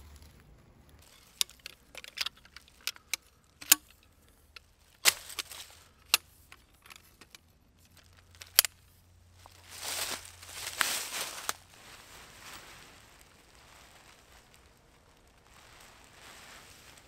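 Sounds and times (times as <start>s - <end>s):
metal tent pole clicking: 1.0s - 7.4s, 8.4s - 8.8s.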